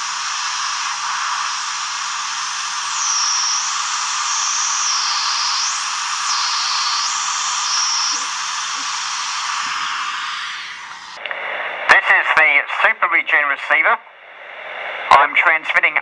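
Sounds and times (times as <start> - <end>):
radio receiver hiss: 0.0 - 16.0
high sliding whistle: 0.1 - 11.2.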